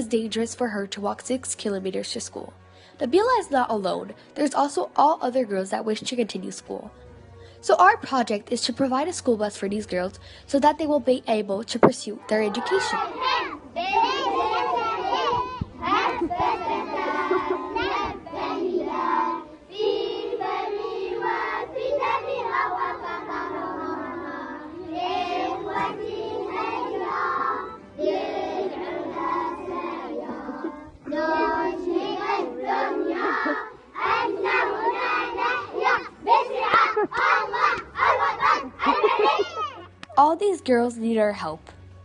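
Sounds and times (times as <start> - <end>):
children singing in unison: 12.6 - 39.3.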